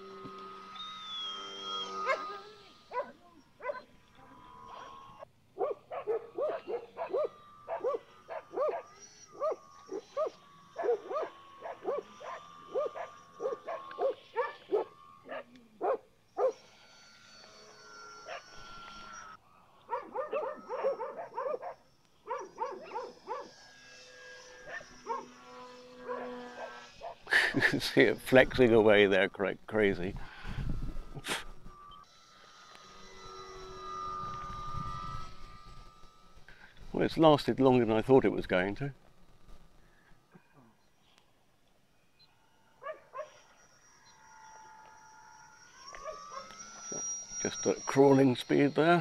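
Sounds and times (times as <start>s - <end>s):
electric motor and propeller whine: 0.0s - 49.0s
dog barking: 2.0s - 2.3s, 2.9s - 3.8s, 5.6s - 9.6s, 10.2s - 16.6s, 19.9s - 23.5s, 24.7s - 25.3s.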